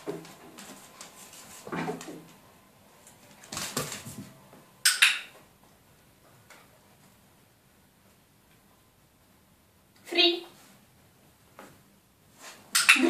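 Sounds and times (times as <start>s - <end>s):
dog claws on wooden floor: 3.0s - 4.4s.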